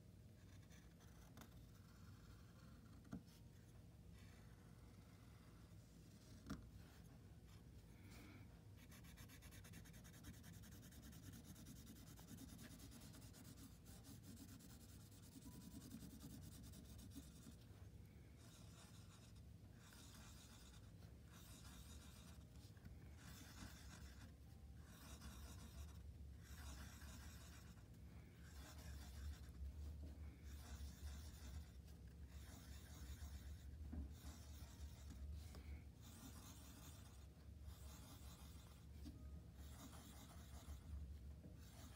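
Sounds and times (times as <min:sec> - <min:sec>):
low steady hum: 0:00.0 - 0:41.9
stick scratching on paper: 0:08.8 - 0:17.8, 0:18.4 - 0:41.9.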